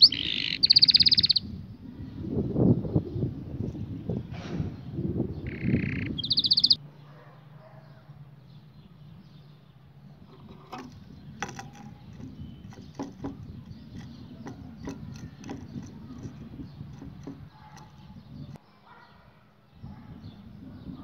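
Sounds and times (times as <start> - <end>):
bird pecking cage floor: 10.3 - 18.1.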